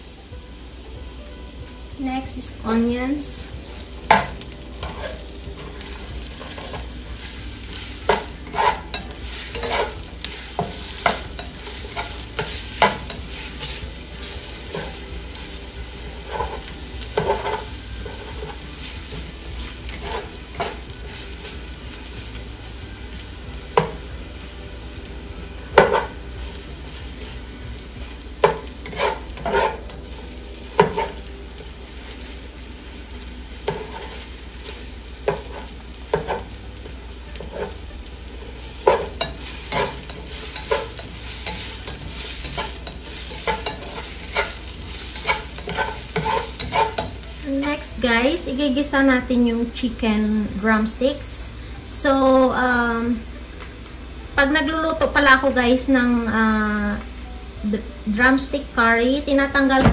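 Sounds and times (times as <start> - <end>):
onions sizzling in a pan: 0.0 - 59.9
utensil scraping a pan: 3.6 - 21.6, 28.4 - 31.3, 33.6 - 36.6, 38.8 - 47.8.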